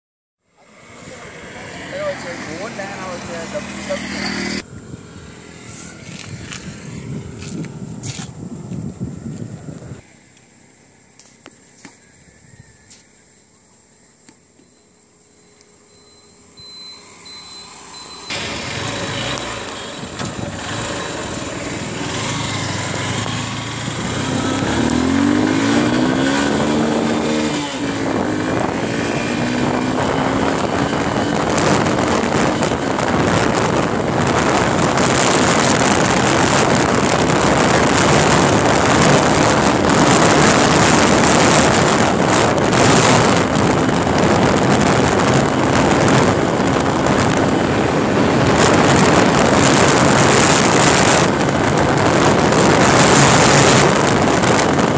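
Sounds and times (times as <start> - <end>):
motorcycle engine revving: 0.5 - 11.6, 14.6 - 54.9
wind rushing over microphone: 0.7 - 10.1, 16.6 - 54.9.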